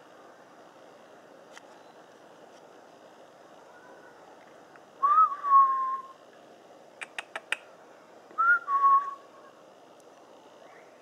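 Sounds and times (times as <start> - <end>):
clear whistles: 5.0 - 6.2, 8.4 - 9.2
quick sharp clicks: 7.0 - 7.7.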